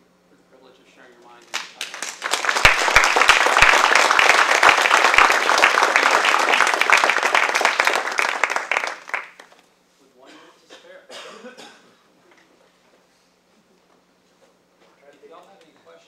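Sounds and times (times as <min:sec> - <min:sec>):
audience applauding: 0:01.5 - 0:09.6.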